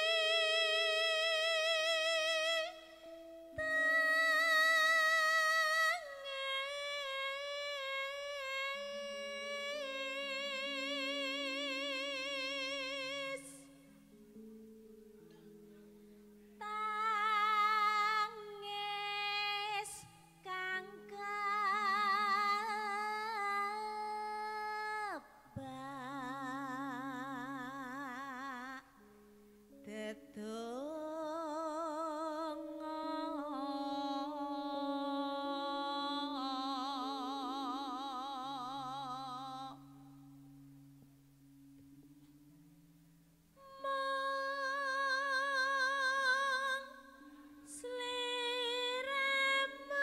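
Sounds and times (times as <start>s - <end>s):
woman singing with vibrato: 0.0s - 13.8s, 16.6s - 29.0s, 29.7s - 40.2s, 43.6s - 50.0s
low sustained accompaniment notes: 0.0s - 50.0s.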